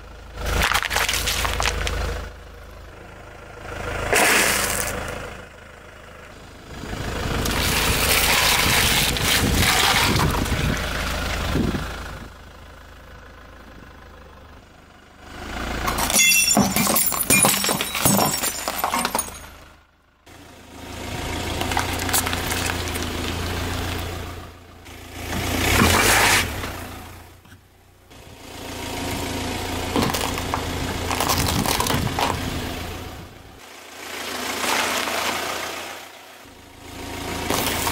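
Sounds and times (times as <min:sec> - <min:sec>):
car engine idling: 0:00.0 - 0:37.9
noodle cup crunching under tyre: 0:00.6 - 0:02.0, 0:29.9 - 0:32.4
ceramic container shattering: 0:16.0 - 0:19.5.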